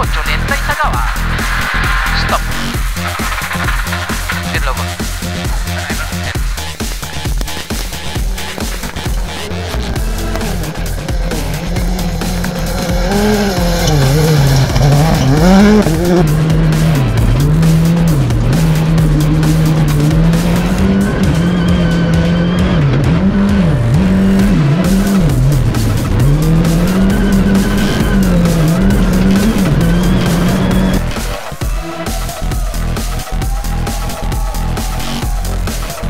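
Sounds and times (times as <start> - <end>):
rally car engine revving: 0.0 - 36.0
sharp clicks and clatter: 2.7 - 6.4.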